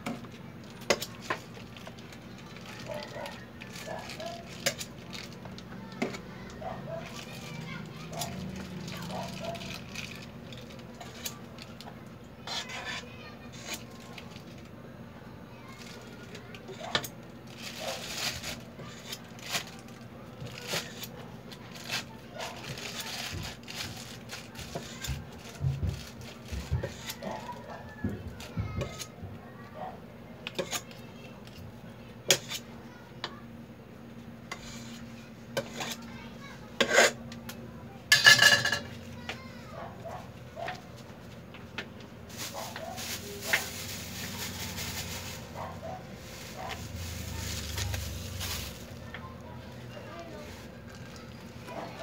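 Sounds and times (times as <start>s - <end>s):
faint voices: 0.0s - 52.0s
spatula scraping buttercream: 12.4s - 14.2s, 21.8s - 27.9s, 34.5s - 36.1s, 36.8s - 37.2s.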